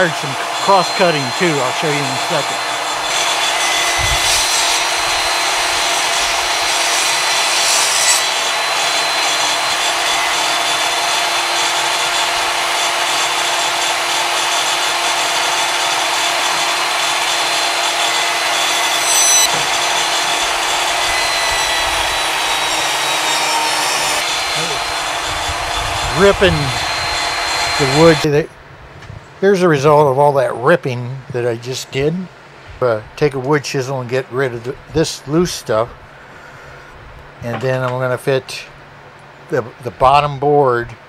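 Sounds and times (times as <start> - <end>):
table saw ripping wood: 0.0 - 28.2.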